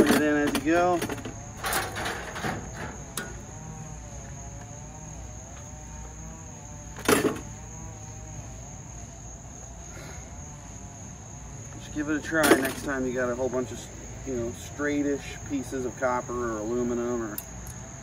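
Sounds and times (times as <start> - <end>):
crickets chirring: 0.0 - 18.0.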